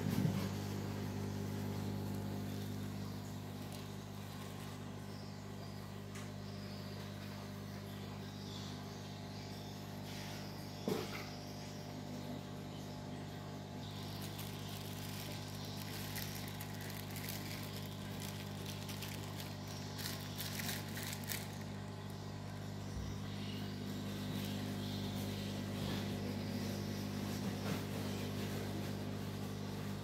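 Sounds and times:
aquarium pump humming: 0:00.0 - 0:30.0
faint crackles: 0:13.8 - 0:22.4.

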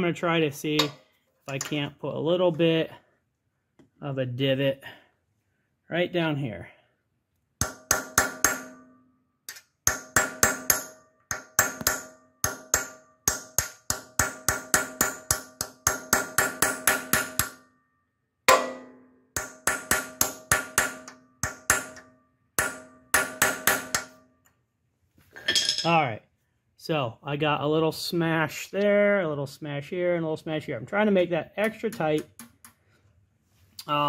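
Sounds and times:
hammer tapping steel punch: 0:00.8 - 0:01.8, 0:07.6 - 0:17.6, 0:18.5 - 0:24.2, 0:31.6 - 0:32.8.

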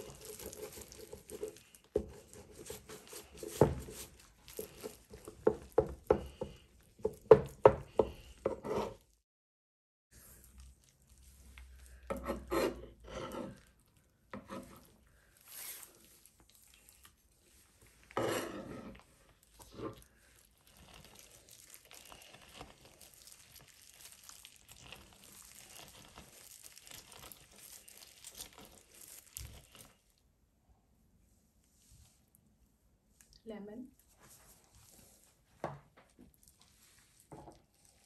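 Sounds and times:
lemon rubbing on plastic juicer: 0:00.0 - 0:09.0.

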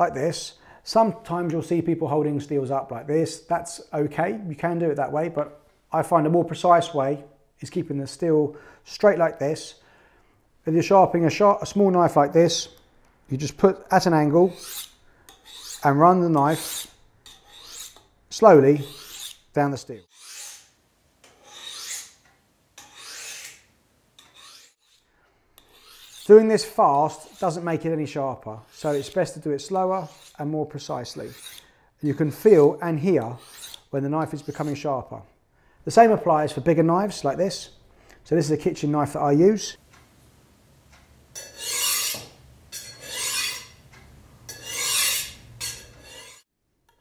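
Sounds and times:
knife scraping on honing steel: 0:14.4 - 0:18.1, 0:18.8 - 0:22.2, 0:22.8 - 0:27.7, 0:28.6 - 0:31.7, 0:32.4 - 0:34.9, 0:41.4 - 0:43.8, 0:44.5 - 0:47.0.

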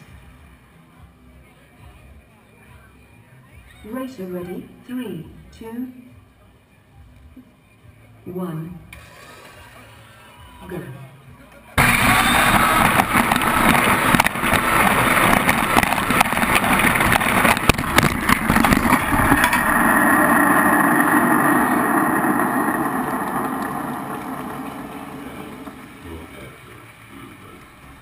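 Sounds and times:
rattling and clatter: 0:11.8 - 0:27.8.

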